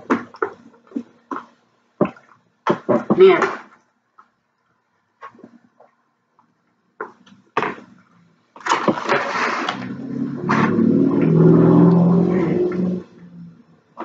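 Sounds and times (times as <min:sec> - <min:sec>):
styrofoam creaking and squeaking: 0:08.6 - 0:10.9.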